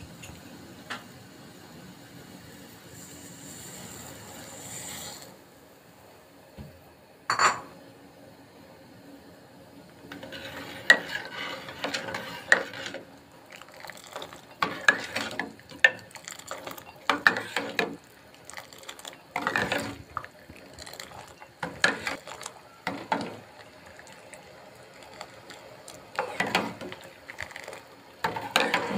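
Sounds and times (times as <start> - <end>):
liquid sloshing: 10.2 - 28.9
tea splashing into pot: 10.3 - 28.9.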